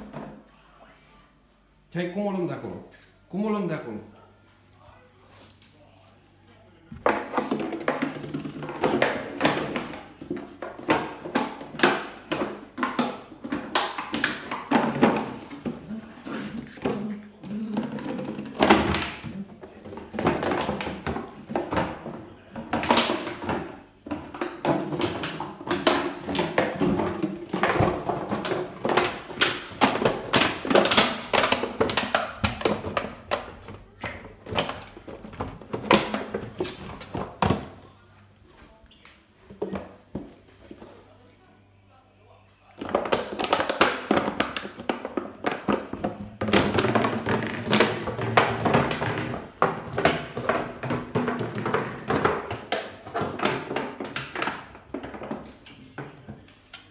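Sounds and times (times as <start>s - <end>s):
plastic bottle crinkling on tiled floor: 7.0s - 37.8s, 42.8s - 56.9s.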